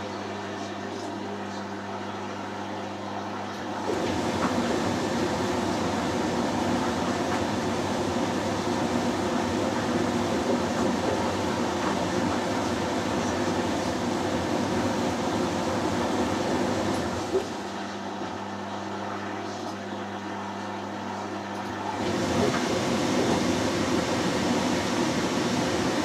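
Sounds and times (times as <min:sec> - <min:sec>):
washing machine drum churning: 0:03.7 - 0:17.9, 0:21.8 - 0:26.0.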